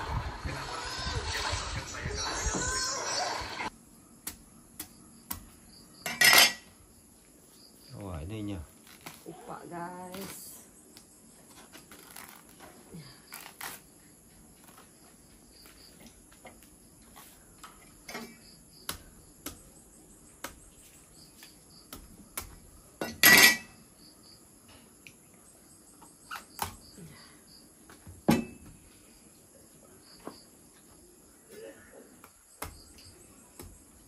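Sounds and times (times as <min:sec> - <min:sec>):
dishes and cutlery clinking: 0:06.0 - 0:06.7, 0:23.0 - 0:23.7
loud dish clatter: 0:23.0 - 0:23.7.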